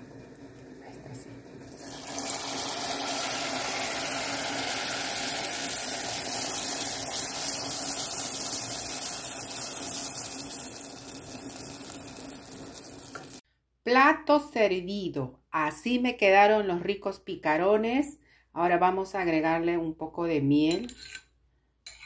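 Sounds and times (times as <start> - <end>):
dough sizzling in hot oil: 0.0 - 13.4.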